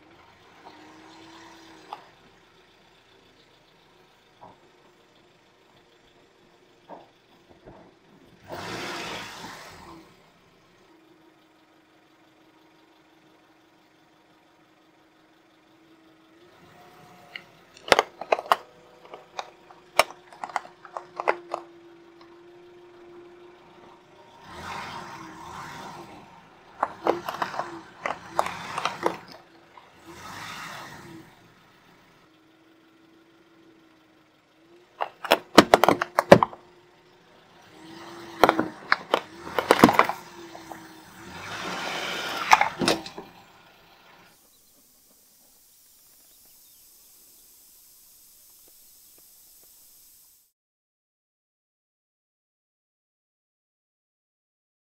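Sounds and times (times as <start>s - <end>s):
car engine hum: 0.0s - 50.5s
crunching under tyre: 17.2s - 22.3s, 24.4s - 31.4s, 37.7s - 43.4s
wood and nails cracking: 17.3s - 21.7s, 26.8s - 29.4s, 35.0s - 36.6s, 38.3s - 40.7s.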